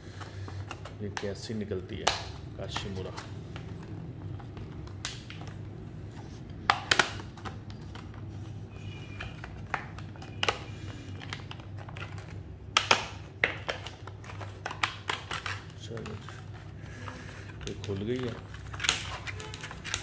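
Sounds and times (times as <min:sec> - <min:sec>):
plastic packaging crackling: 0:06.4 - 0:20.0.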